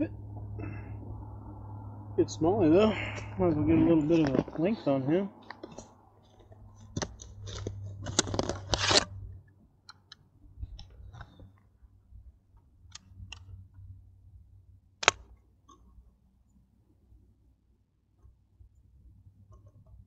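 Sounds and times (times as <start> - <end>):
rustling and scraping of gear: 3.1 - 9.1
sharp click: 15.0 - 15.8.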